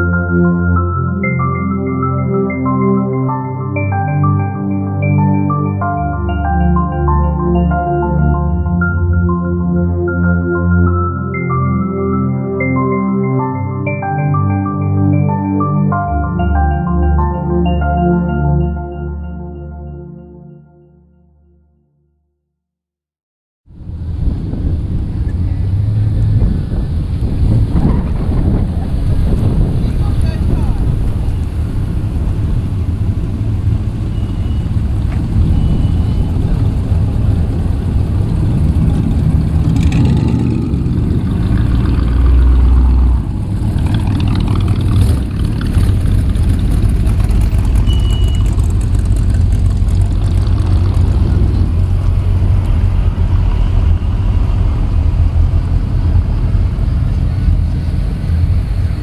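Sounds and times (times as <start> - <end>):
vehicle engines rumbling past: 23.7 - 59.0.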